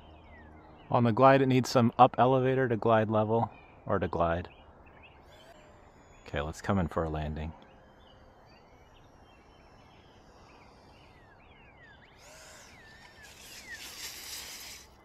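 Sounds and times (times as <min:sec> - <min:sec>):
small birds chirping: 0:00.0 - 0:15.0
model plane skidding through grass: 0:12.2 - 0:15.0.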